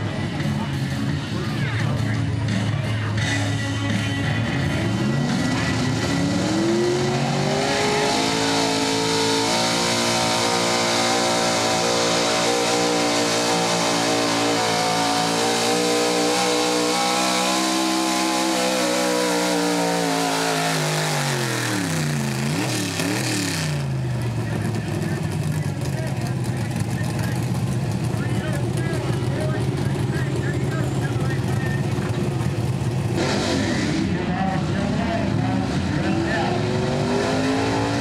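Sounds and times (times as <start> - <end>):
truck engine revving under load: 0.0 - 38.0.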